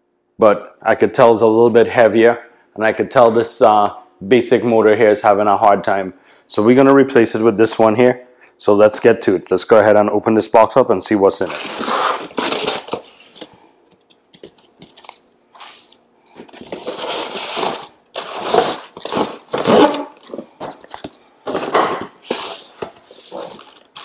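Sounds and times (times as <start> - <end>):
cardboard box scraping and crunching: 16.5 - 20.8.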